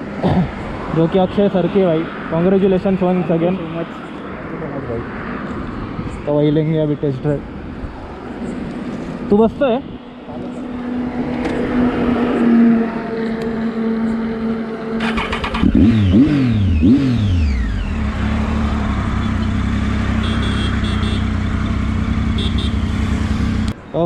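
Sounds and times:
motorcycle engine revving: 0:12.8 - 0:23.8.

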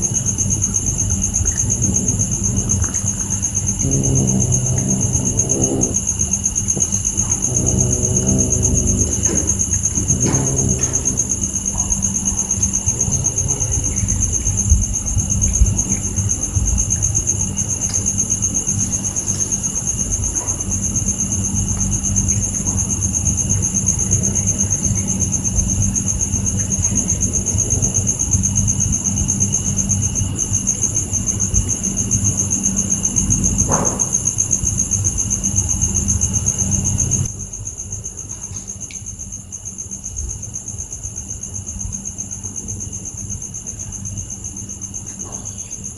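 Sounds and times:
crickets trilling: 0:00.0 - 0:45.9
low rumble: 0:01.2 - 0:17.9.

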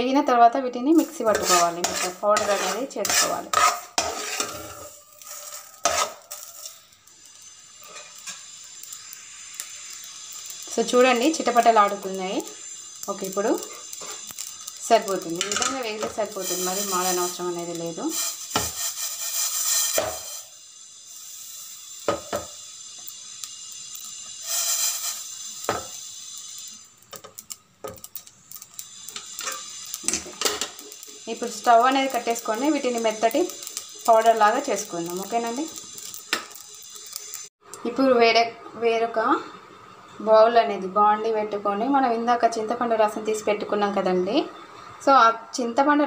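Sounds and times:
metal spoon scraping seeds in pan: 0:00.9 - 0:37.5
small crackles: 0:04.8 - 0:20.4, 0:22.6 - 0:37.5
faint hiss: 0:04.8 - 0:27.6.

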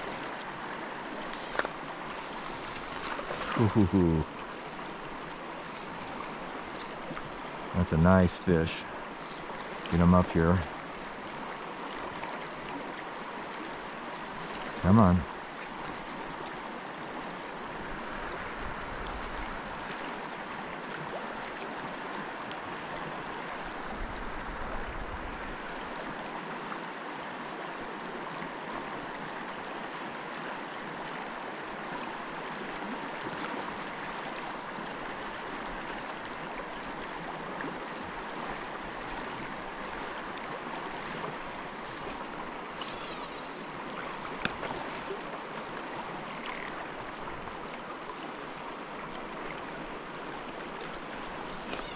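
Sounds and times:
river rushing: 0:00.0 - 0:30.7.

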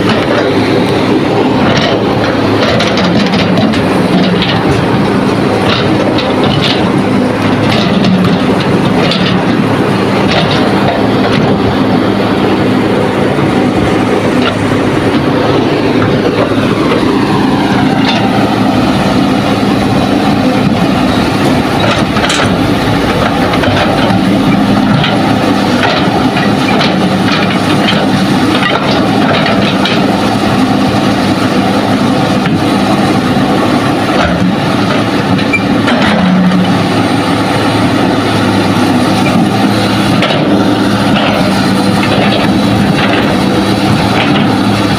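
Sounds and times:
heavy diesel machinery running: 0:00.0 - 0:44.9
metal clanks and knocks: 0:01.6 - 0:11.8, 0:17.9 - 0:18.4, 0:20.5 - 0:30.2, 0:34.1 - 0:36.8, 0:39.2 - 0:44.7.

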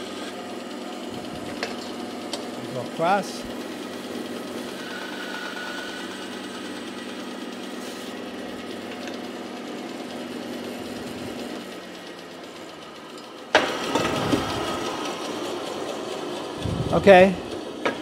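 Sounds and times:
bandsaw humming: 0:00.0 - 0:12.8, 0:13.6 - 0:18.0.

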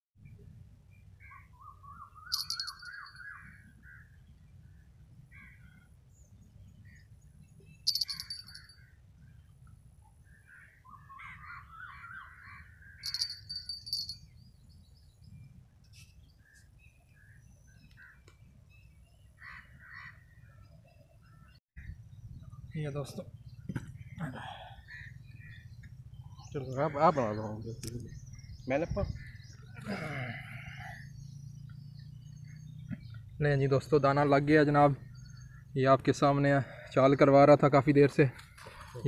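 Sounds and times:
birds trilling and chirping: 0:01.0 - 0:39.0.

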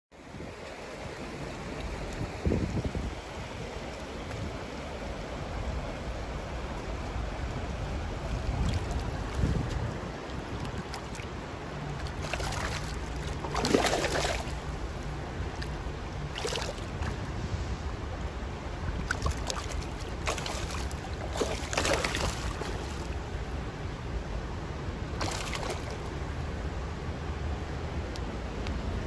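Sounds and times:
water rushing over rocks: 0:00.4 - 0:23.7
fish splashing: 0:11.9 - 0:17.2, 0:19.0 - 0:23.2, 0:25.2 - 0:26.1.

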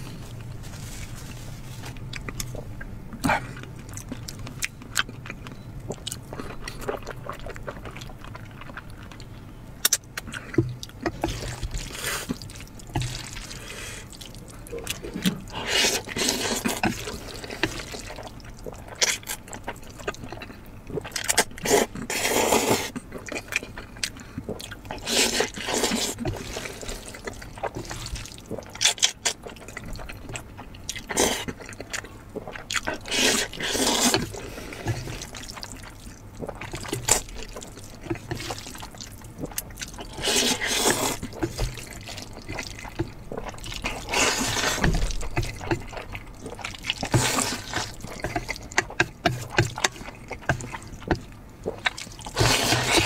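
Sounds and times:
smacking chewing sounds: 0:01.9 - 0:53.0
person slurping noodles: 0:14.8 - 0:18.0, 0:21.6 - 0:22.9, 0:25.0 - 0:27.1, 0:33.0 - 0:35.7, 0:40.0 - 0:41.7, 0:43.4 - 0:44.9, 0:46.5 - 0:48.7, 0:52.0 - 0:53.0.

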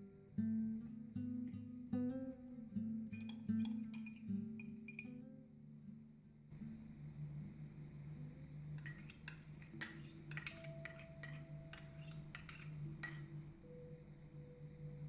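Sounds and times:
metal spoon clinking on ceramic bowl: 0:03.2 - 0:05.2, 0:08.8 - 0:13.4.

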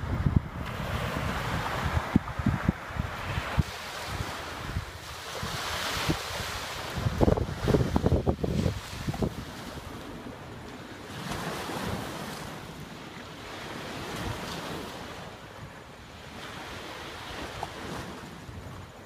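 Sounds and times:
wind blowing over microphone: 0:00.0 - 0:19.0
small waves washing on rocks: 0:03.3 - 0:12.7.

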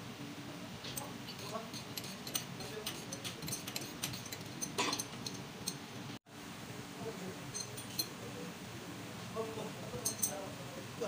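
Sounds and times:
wrench clinking on metal: 0:00.9 - 0:05.9, 0:07.5 - 0:08.2, 0:10.0 - 0:10.4.

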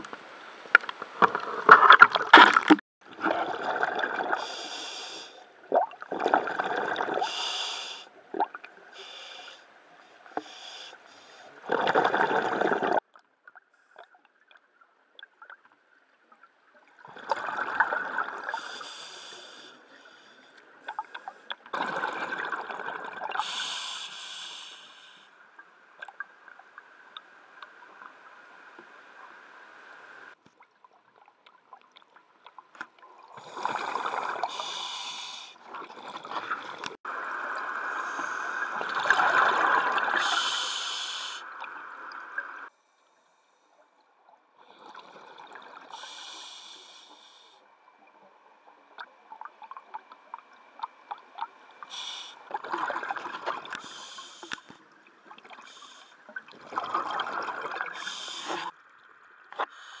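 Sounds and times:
bubbles bubbling out: 0:01.6 - 0:04.4, 0:05.7 - 0:07.2, 0:11.7 - 0:13.0
regulator breathing hiss: 0:04.4 - 0:05.4, 0:07.2 - 0:08.1, 0:09.0 - 0:09.7, 0:10.4 - 0:11.5, 0:18.5 - 0:20.6, 0:23.4 - 0:25.3, 0:34.5 - 0:35.6, 0:40.2 - 0:41.5, 0:45.9 - 0:47.6, 0:51.8 - 0:52.5, 0:53.8 - 0:54.8, 0:55.6 - 0:56.2, 0:57.9 - 0:58.7, 0:59.6 - 1:00.0.

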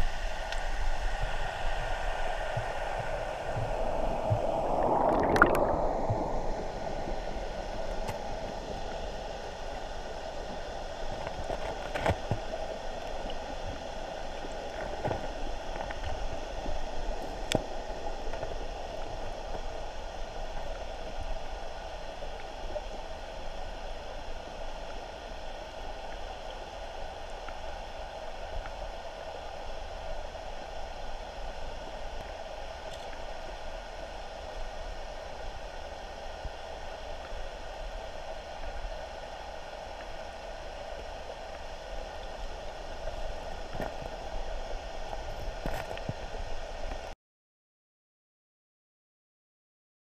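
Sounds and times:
muffled underwater water rush: 0:00.0 - 0:47.1
air bubbles: 0:03.6 - 0:08.4.

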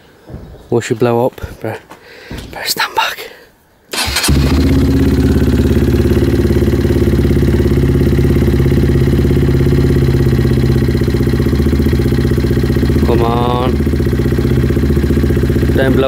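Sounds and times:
motorcycle engine starting and idling: 0:03.9 - 0:16.0.

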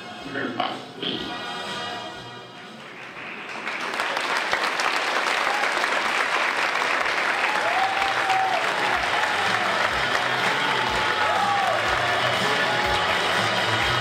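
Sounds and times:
audience applause: 0:02.8 - 0:14.0.

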